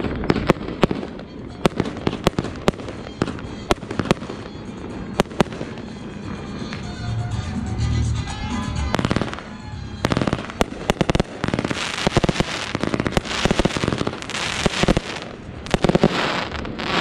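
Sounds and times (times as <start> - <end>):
dense fireworks crackle: 0.0 - 17.0
fireworks shells bursting: 8.4 - 17.0.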